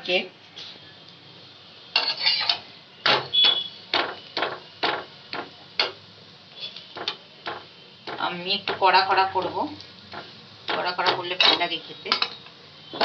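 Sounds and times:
metal spatula scraping griddle: 1.9 - 2.6.

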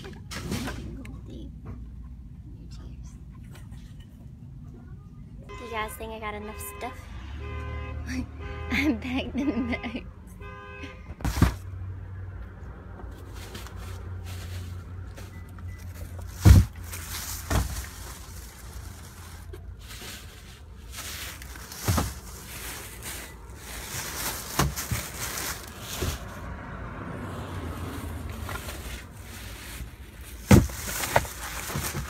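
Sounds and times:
plastic bags rustling: 13.2 - 26.4, 27.8 - 32.0.

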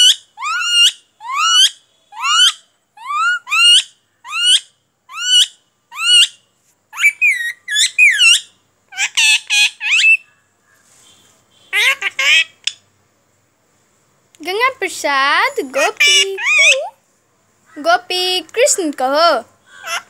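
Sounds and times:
parakeet whistled calls: 0.0 - 6.4, 7.0 - 10.3
parakeet chattering: 0.0 - 10.3, 11.6 - 12.8, 14.6 - 17.0, 19.7 - 20.0.

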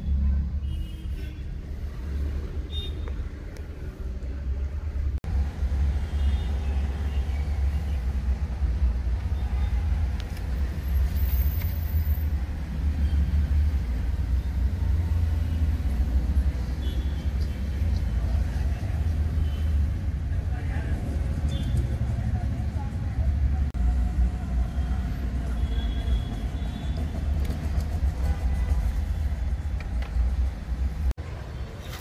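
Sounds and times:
car engine and road rumble: 26.5 - 32.0.

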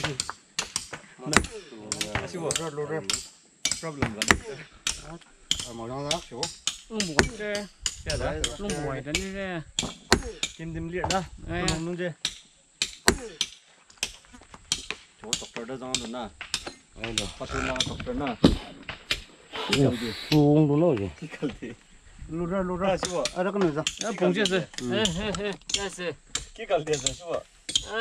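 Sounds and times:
people talking: 0.0 - 0.2, 1.2 - 3.2, 3.8 - 12.2, 15.2 - 16.3, 17.0 - 18.9, 19.5 - 28.0.

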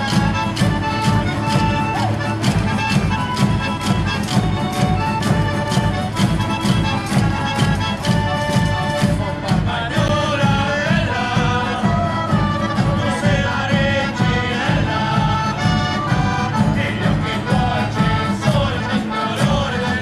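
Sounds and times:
folk instruments playing: 0.0 - 20.0
steady drum beat: 0.0 - 20.0
voices singing together: 8.8 - 20.0.

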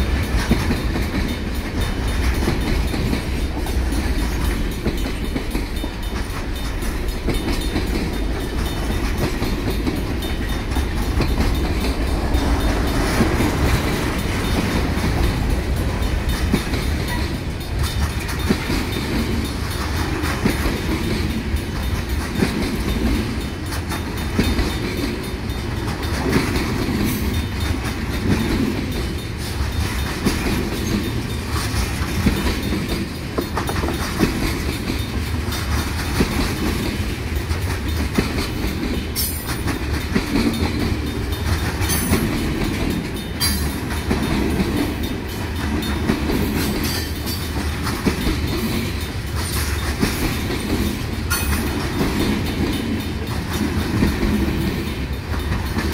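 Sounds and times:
freight train rumble: 0.0 - 55.9
wheels clattering over rail joints: 0.0 - 55.9
crossing bells ringing: 0.1 - 20.2.

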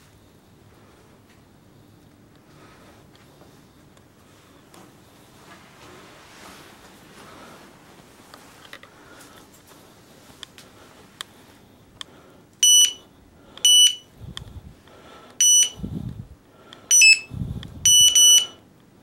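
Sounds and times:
bite alarm beeps: 12.6 - 13.0, 13.6 - 14.1, 15.4 - 15.8, 16.9 - 18.6.

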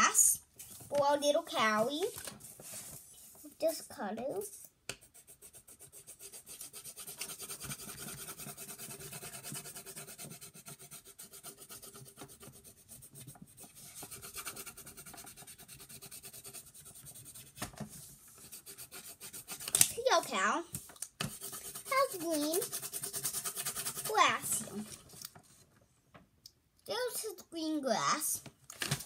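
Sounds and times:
pencil scratching on paper: 4.4 - 20.5, 21.2 - 25.2.

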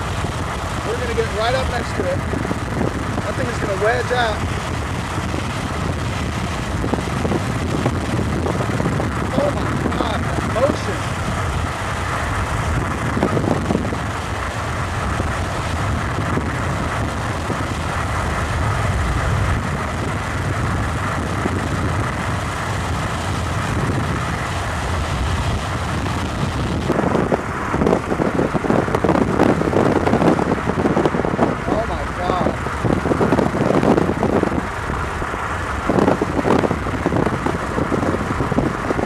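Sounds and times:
car road and engine noise: 0.0 - 39.0.

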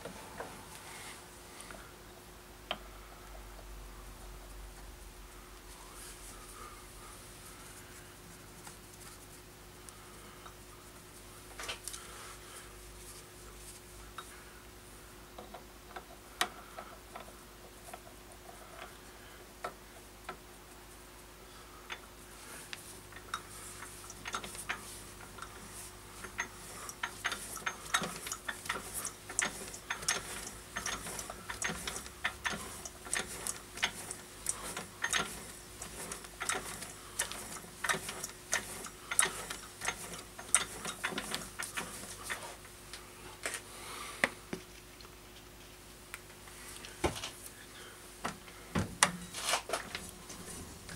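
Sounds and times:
faint steady hum: 0.0 - 50.9
lathe chuck metallic clicks: 23.2 - 42.4.

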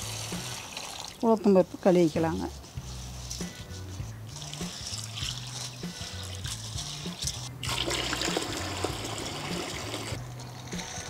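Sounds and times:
water pouring into steel bucket: 0.0 - 1.3, 4.3 - 11.0
hand swishing lentils in water: 0.0 - 8.4
background music with low notes: 0.0 - 11.0.

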